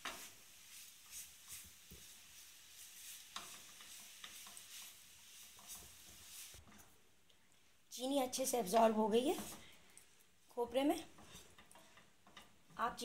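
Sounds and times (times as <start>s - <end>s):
spoon scraping a cooking pan: 0.0s - 7.0s, 8.6s - 9.8s, 11.0s - 12.7s
light sizzle: 0.0s - 13.0s.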